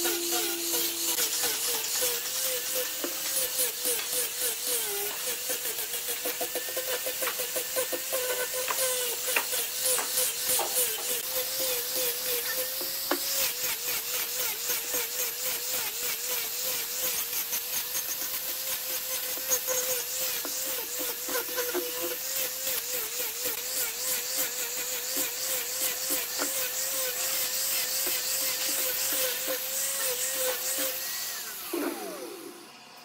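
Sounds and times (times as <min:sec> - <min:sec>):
hiss of sanding wood: 0:00.0 - 0:32.2
angle grinder motor whine: 0:00.0 - 0:33.0.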